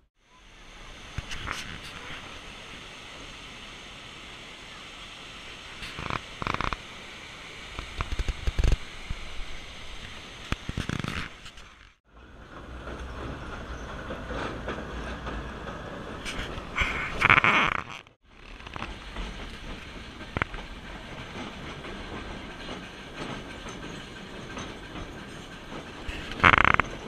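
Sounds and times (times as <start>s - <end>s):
train rumbling on rails: 0.0s - 27.0s.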